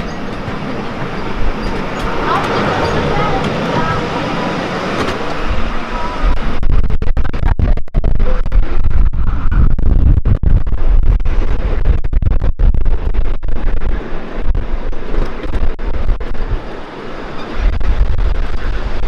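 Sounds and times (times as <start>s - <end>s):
miniature train rumbling on track: 0.0s - 6.6s
wind rushing over microphone: 0.0s - 19.0s.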